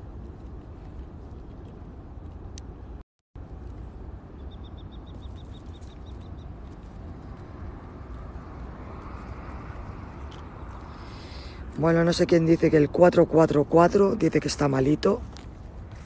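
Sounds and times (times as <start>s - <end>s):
steady low rumble: 0.0s - 16.0s
bird trilling high chirps: 4.4s - 6.5s.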